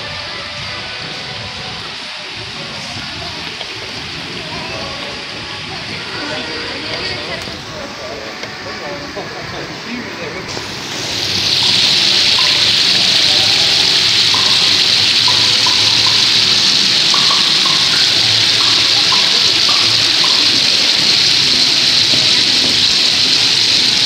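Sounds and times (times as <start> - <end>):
waterfall splashing into pond: 0.8 - 5.4, 10.5 - 24.0.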